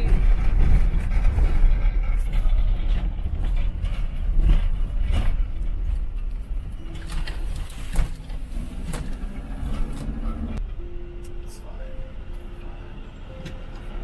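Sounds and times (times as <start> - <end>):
van knocking and rattling: 0.0 - 7.0
van engine and tyres rumbling: 0.0 - 14.0.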